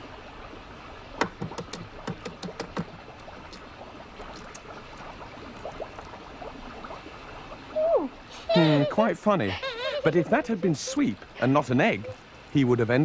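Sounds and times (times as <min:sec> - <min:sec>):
faint steady hiss: 0:00.0 - 0:13.0.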